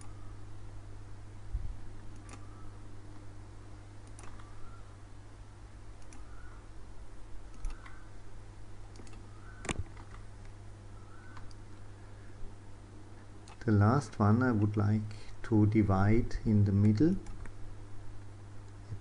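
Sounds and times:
low electrical hum: 0.0s - 19.0s
computer mouse clicks: 2.1s - 2.6s, 4.0s - 4.6s, 6.0s - 6.3s, 7.5s - 8.1s, 8.8s - 10.2s, 11.2s - 11.6s, 13.4s - 13.7s.

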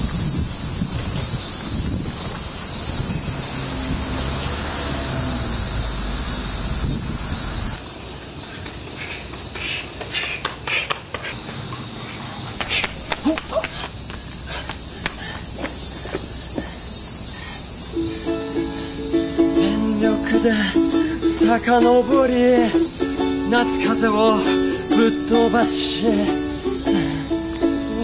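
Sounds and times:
wind buffeting microphone: 0.0s - 7.8s
high whine: 0.0s - 8.0s, 11.7s - 28.0s
cicadas buzzing: 0.0s - 28.0s
ukulele playing: 18.0s - 28.0s.

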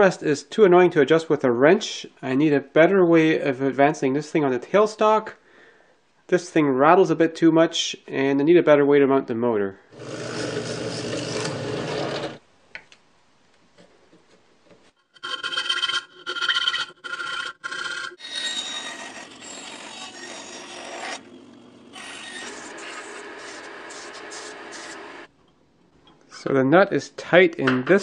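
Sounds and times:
bandsaw cutting wood: 10.0s - 12.4s, 15.1s - 25.3s
drill press boring into plywood: 10.0s - 12.4s, 22.0s - 25.3s
file rasping in wood: 15.1s - 21.3s, 22.0s - 25.0s.

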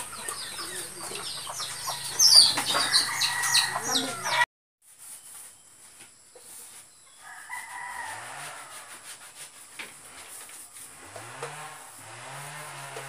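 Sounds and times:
rooster crowing: 1.7s - 4.5s, 7.2s - 9.0s.

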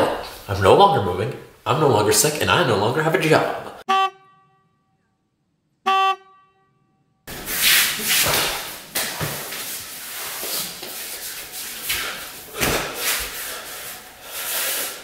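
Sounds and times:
horn-like toot: 3.9s - 4.9s, 5.8s - 7.0s
rustling and shuffling: 7.3s - 15.0s
person falling onto hard floor: 7.5s - 9.7s, 11.9s - 13.3s.

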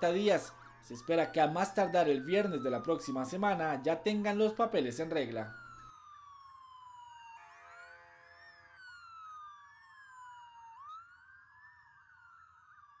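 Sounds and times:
motorcycle sirens wailing: 0.0s - 7.5s
steady lower siren tone: 0.0s - 13.0s.

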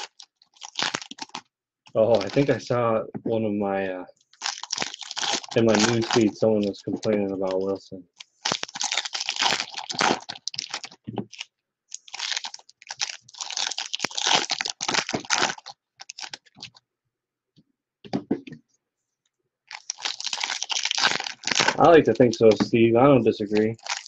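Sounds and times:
wrappers crinkling and tearing: 0.0s - 2.7s, 4.3s - 16.8s, 19.7s - 24.0s
cards rustling: 2.0s - 2.6s, 4.4s - 16.8s, 19.7s - 24.0s.

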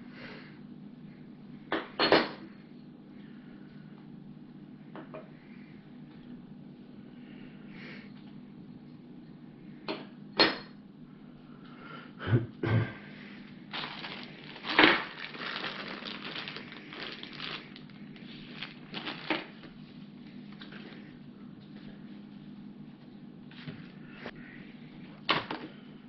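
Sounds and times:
low steady hum: 0.0s - 26.0s
plastic bags crinkling: 13.7s - 19.8s.

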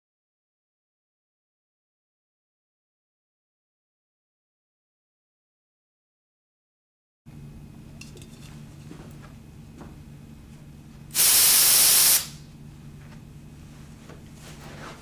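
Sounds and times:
aerosol spray can hissing: 11.2s - 12.4s.

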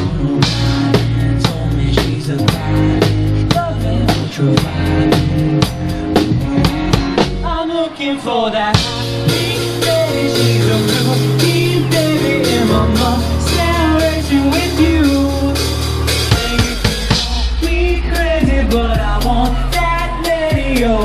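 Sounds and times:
drum kit: 0.0s - 7.7s, 8.7s - 21.0s
low bass notes: 0.0s - 7.7s, 8.8s - 21.0s
person singing: 0.0s - 21.0s.

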